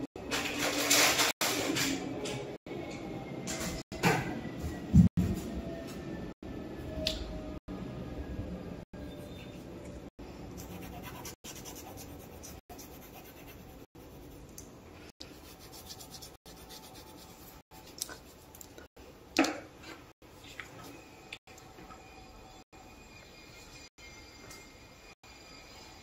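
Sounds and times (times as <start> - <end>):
pencil scratching on paper: 10.6 - 14.4.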